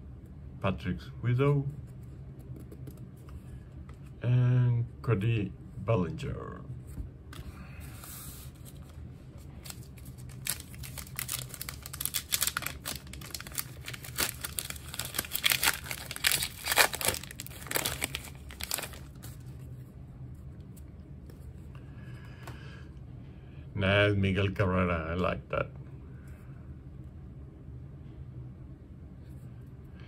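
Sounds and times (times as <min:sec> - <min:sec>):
plastic wrapper crinkling and tearing: 0:09.6 - 0:19.5.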